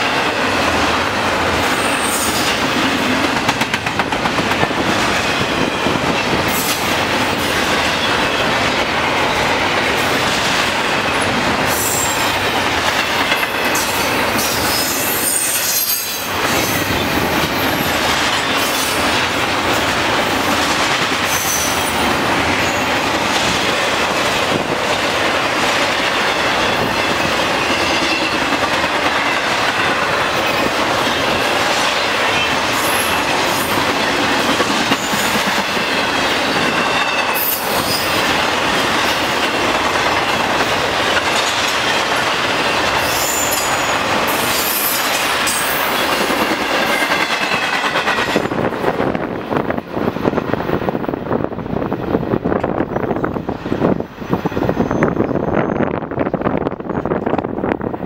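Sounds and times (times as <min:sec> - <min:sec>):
train wheels on rails: 0:00.0 - 0:58.0
wind on microphone: 0:47.8 - 0:58.0.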